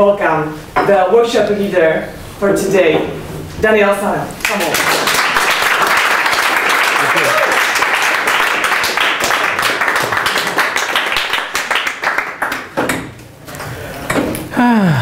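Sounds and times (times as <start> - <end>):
small audience applauding: 4.4 - 13.8
person calling out: 14.5 - 15.0.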